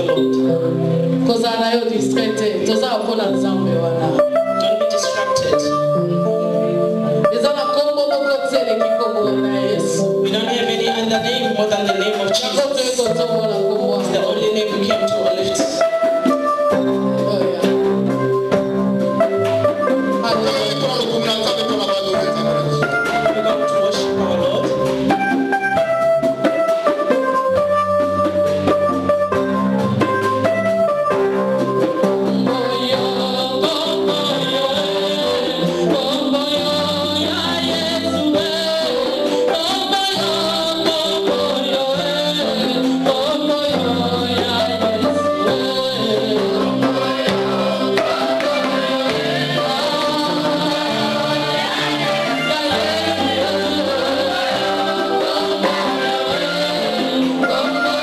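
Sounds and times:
sustained melodic instrument notes: 0.0s - 38.7s
gospel singers with accompaniment: 0.0s - 58.0s
steady drum beat: 43.3s - 58.0s.

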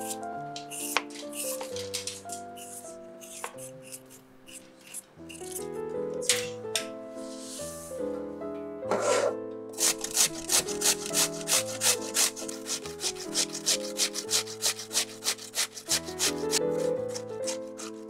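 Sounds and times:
potato scraped on metal grater: 0.0s - 1.9s, 2.6s - 5.6s, 9.0s - 18.0s
peeler scraping potato: 0.0s - 5.7s, 9.0s - 18.0s
background music sustained chords: 0.0s - 14.6s.

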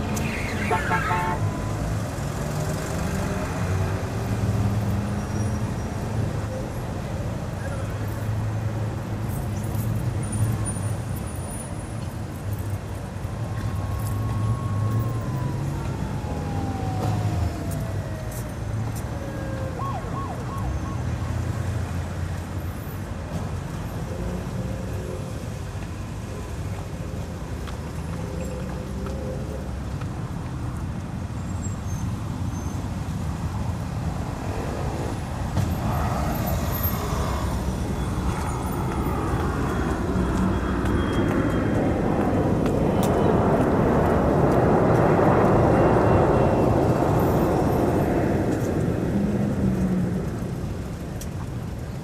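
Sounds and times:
vehicle going by: 0.0s - 6.4s, 34.2s - 51.8s
traffic rumble: 0.0s - 52.0s.

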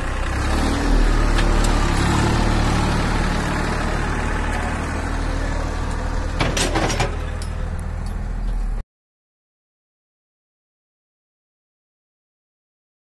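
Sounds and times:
tractor diesel engine running: 0.0s - 8.8s.

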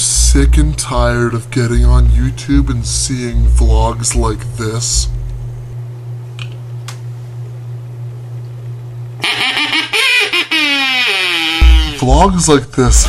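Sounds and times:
low steady hum: 0.0s - 13.0s
duck call quack: 9.2s - 12.1s.

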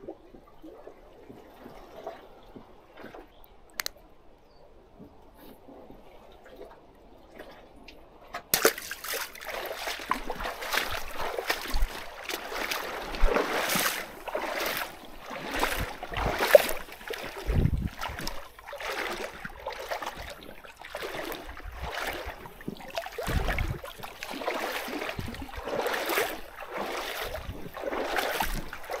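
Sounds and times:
waves splashing against rocks: 8.5s - 29.0s.

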